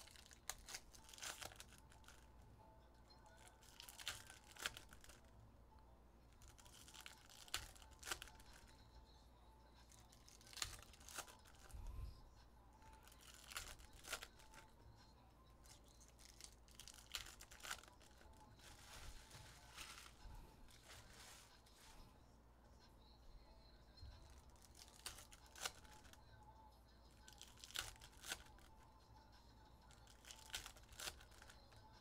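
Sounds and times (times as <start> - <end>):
foil wrappers tearing and crinkling: 0.0 - 2.2, 3.4 - 5.2, 6.4 - 8.7, 9.9 - 11.7, 13.0 - 14.7, 16.1 - 21.5, 24.3 - 26.2, 27.3 - 28.8, 29.9 - 31.6.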